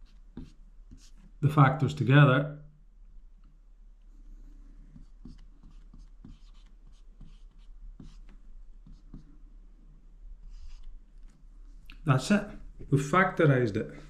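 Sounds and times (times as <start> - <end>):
marker writing on whiteboard: 0.0 - 1.5, 4.2 - 9.5, 10.4 - 11.4.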